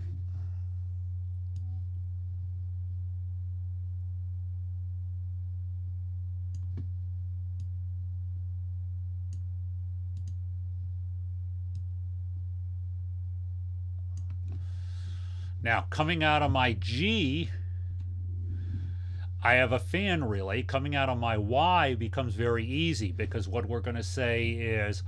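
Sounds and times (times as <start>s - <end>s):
low electrical hum: 0.0s - 25.0s
faint mouse clicks: 1.4s - 1.7s, 6.5s - 6.9s, 10.2s - 10.4s, 14.0s - 14.7s.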